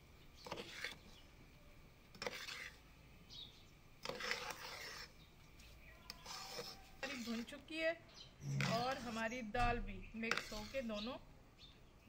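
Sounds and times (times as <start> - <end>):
metal spoon scraping pot: 0.4 - 1.0, 2.2 - 2.8, 4.0 - 5.2, 6.1 - 7.6, 8.4 - 9.5, 10.2 - 11.1.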